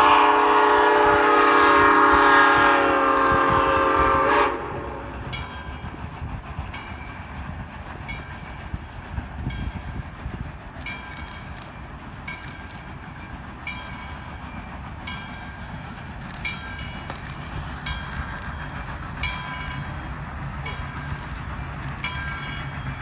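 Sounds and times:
steam engines rumbling: 0.0s - 23.0s
locomotive bell ringing: 5.2s - 7.4s, 8.0s - 8.8s, 10.8s - 23.0s.

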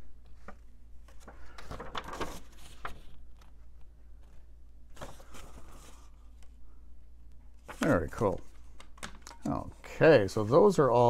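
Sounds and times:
paper rustling: 0.3s - 6.4s.

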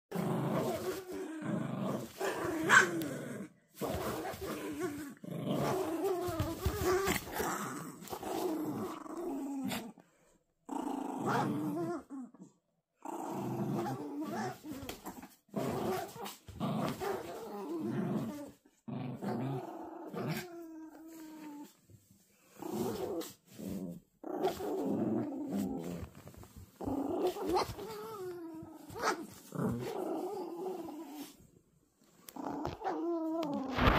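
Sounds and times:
small dogs growling: 0.1s - 21.8s, 22.4s - 31.5s, 32.2s - 33.9s.

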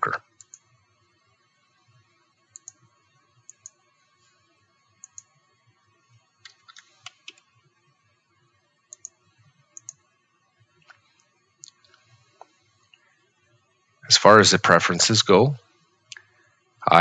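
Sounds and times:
faint keyboard typing: 0.0s - 0.8s, 2.5s - 4.4s, 5.0s - 5.4s, 6.4s - 7.6s, 8.9s - 10.0s.

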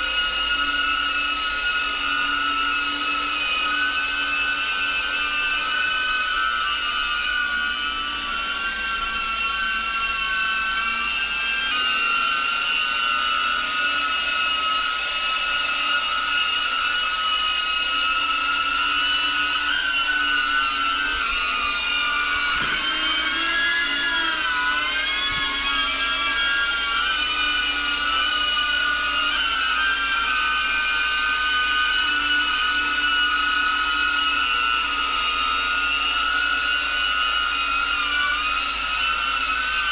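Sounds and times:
drone propellers whining: 0.0s - 39.9s.

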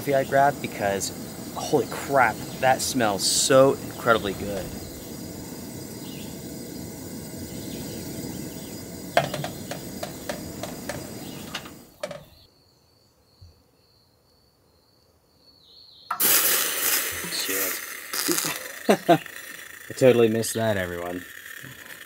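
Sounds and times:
water pouring into kettle: 0.0s - 11.8s, 16.1s - 22.0s
camp stove burner hissing: 0.0s - 12.5s, 16.1s - 22.0s
kettle knocking: 9.0s - 12.2s.

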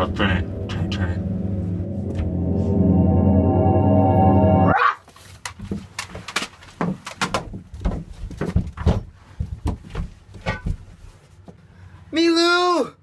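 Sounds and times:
bodies thumping on floor and furniture: 5.6s - 11.3s.

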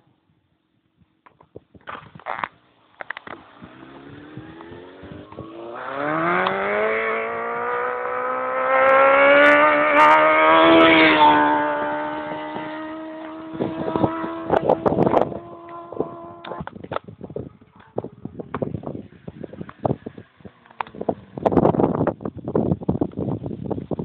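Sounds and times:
motorcycle engine accelerating: 3.0s - 17.3s, 18.7s - 23.4s
wind gusts on microphone: 3.3s - 24.0s.

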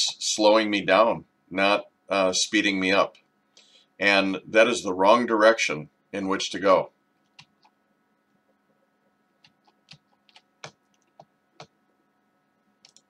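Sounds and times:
faint steady hum: 0.0s - 13.0s
computer clicks: 7.2s - 7.8s, 12.8s - 13.0s.

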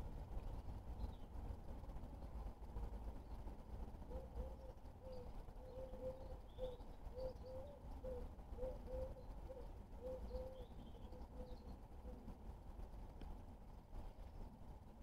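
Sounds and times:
small birds chirping: 0.3s - 1.4s, 3.1s - 12.2s
pigeon cooing: 4.1s - 10.7s.

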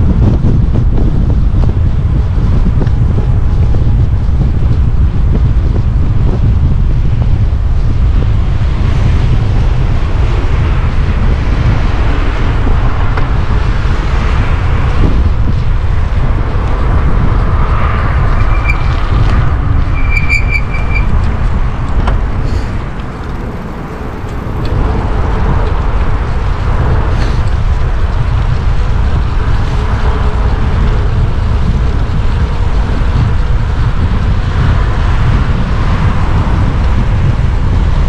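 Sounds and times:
road noise: 0.0s - 38.0s
wind buffeting on microphone: 0.0s - 38.0s
short high beeps: 20.0s - 21.1s.

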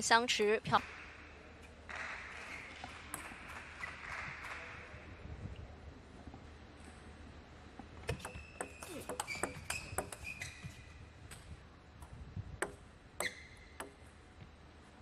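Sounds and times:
table tennis ball clicking: 8.1s - 10.4s, 12.0s - 14.1s.

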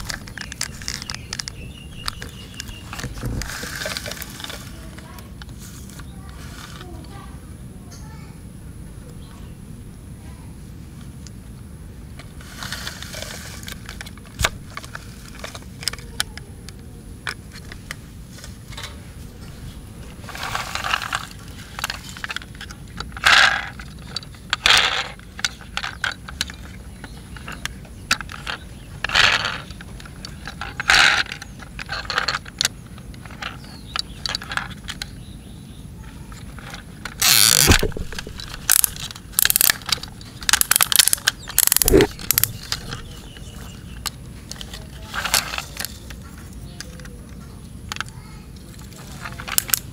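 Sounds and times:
toy ladders clicking into place: 0.0s - 5.2s, 20.3s - 35.1s, 36.3s - 43.4s, 47.9s - 49.9s
toy parts rattling and clicking: 0.0s - 7.1s, 12.4s - 18.0s, 20.0s - 35.2s, 36.3s - 49.9s.

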